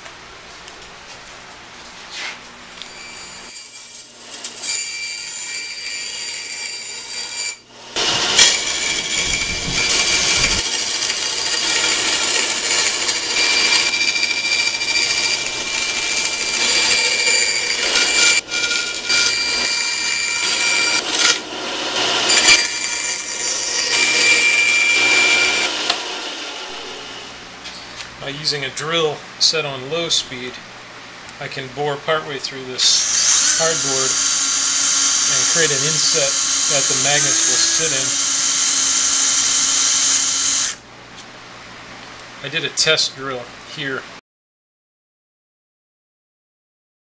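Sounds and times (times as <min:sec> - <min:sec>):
bandsaw cutting cardboard: 0:02.9 - 0:27.3, 0:32.8 - 0:40.8.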